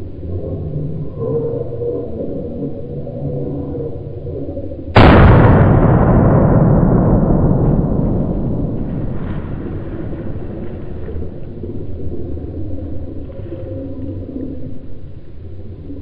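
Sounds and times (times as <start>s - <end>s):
faint wavering low calls: 0.0s - 16.0s
rifle shot echo: 5.0s - 11.4s.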